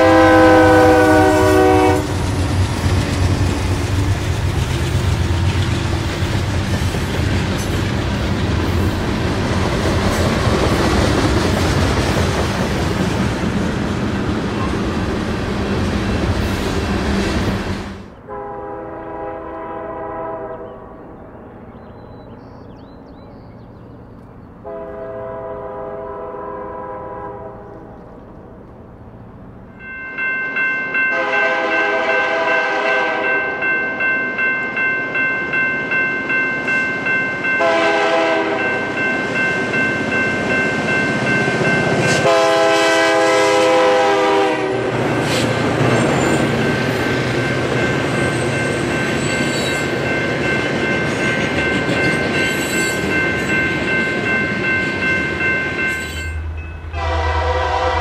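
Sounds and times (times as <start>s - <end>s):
locomotive air horn blasts: 0.0s - 2.3s, 18.2s - 20.8s, 24.6s - 27.7s, 31.1s - 33.5s, 37.6s - 38.8s, 42.1s - 45.0s, 56.9s - 58.0s
freight train running past: 0.0s - 58.0s
crossing bell ringing: 29.7s - 45.1s, 46.0s - 58.0s.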